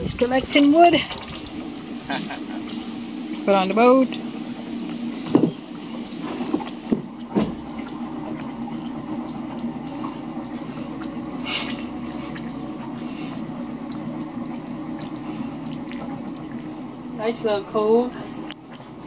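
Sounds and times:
boat engine idling: 0.0s - 19.0s
logs knocking onto boat: 5.2s - 5.6s, 6.3s - 7.8s.

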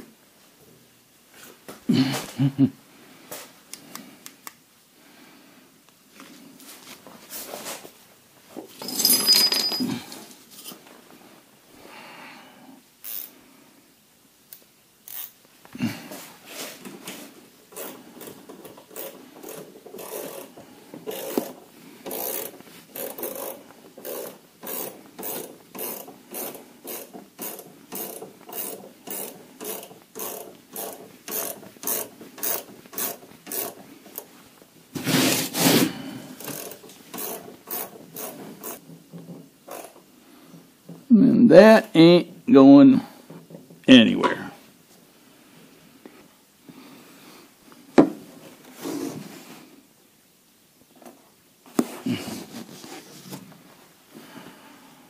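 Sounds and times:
ratchet wrench clicking: 13.0s - 13.3s, 15.0s - 15.4s, 17.8s - 34.3s, 36.4s - 38.8s, 39.7s - 40.0s.

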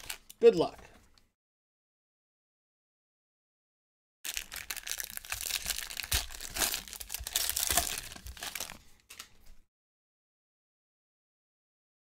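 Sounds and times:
foil wrapper crinkling: 0.0s - 0.4s, 4.3s - 9.3s
foil tearing: 4.3s - 8.8s.

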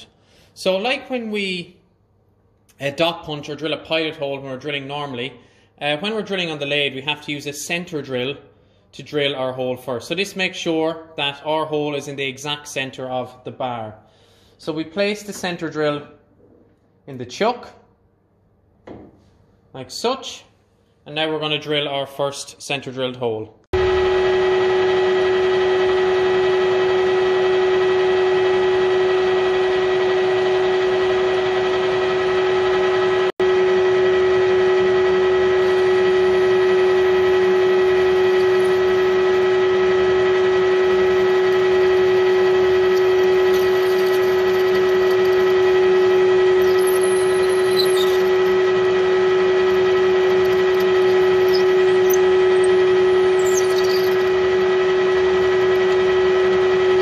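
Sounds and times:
metal lathe humming: 23.8s - 57.0s
high squeaks of drill cutting: 42.8s - 48.8s, 49.6s - 54.4s.

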